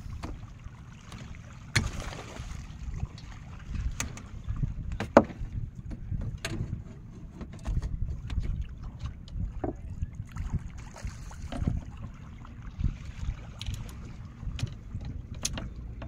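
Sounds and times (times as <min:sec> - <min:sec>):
water lapping at boat: 0:00.0 - 0:16.0
wind rumbling on microphone: 0:00.0 - 0:16.0
knocks and clicks of fishing gear: 0:01.1 - 0:02.0, 0:03.8 - 0:04.3, 0:04.9 - 0:09.9, 0:11.4 - 0:11.8, 0:13.5 - 0:16.0.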